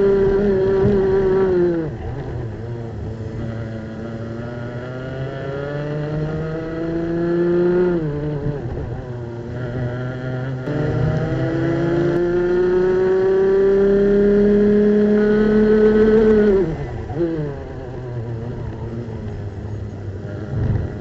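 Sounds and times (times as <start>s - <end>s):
two-stroke kart engine revving: 0.0s - 21.0s.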